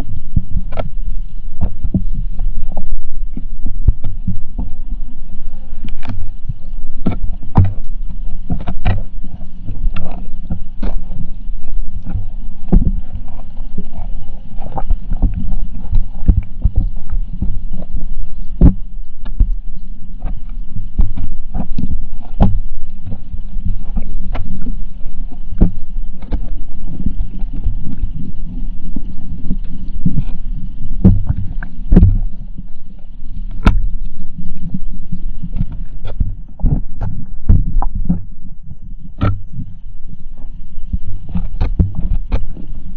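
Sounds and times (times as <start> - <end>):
muffled underwater rumble: 0.0 - 42.9
sharp clicks and knocks: 39.2 - 39.6.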